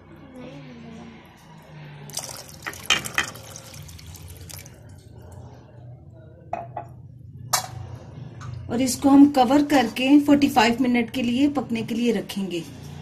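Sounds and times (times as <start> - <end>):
water pouring into curry: 2.1 - 5.0.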